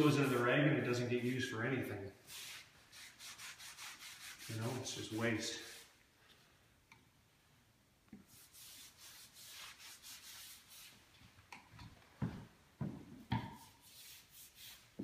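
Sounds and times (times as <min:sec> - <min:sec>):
applicator pad scrubbing wood floor: 0:02.3 - 0:05.9.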